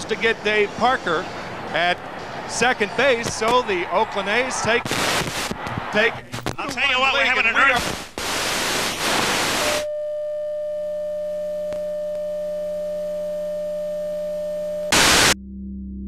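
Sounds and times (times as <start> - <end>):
static hiss: 4.5 - 5.6, 7.2 - 9.9, 14.9 - 15.4
steady electronic tone: 12.3 - 15.4.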